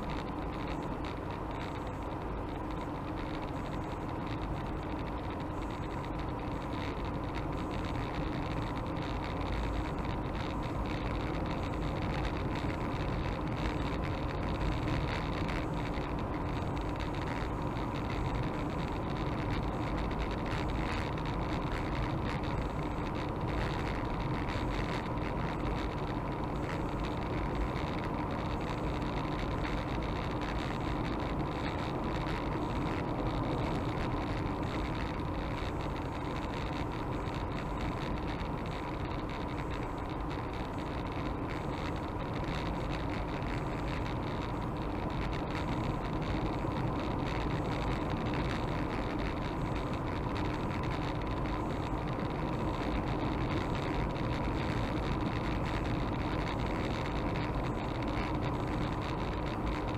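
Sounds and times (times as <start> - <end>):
car engine and road noise: 0.0 - 59.9.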